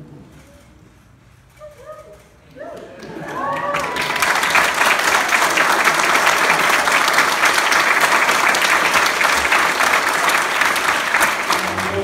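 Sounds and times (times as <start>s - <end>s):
crowd applauding: 2.6s - 12.0s.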